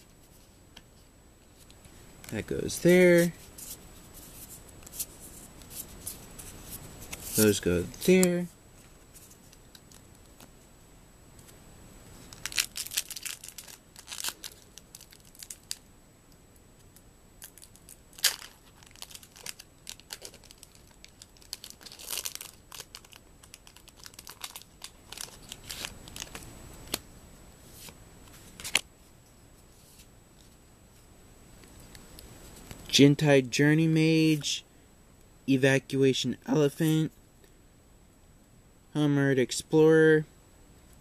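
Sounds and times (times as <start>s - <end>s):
foil wrapper tearing and crinkling: 12.2s - 15.8s, 17.4s - 27.0s.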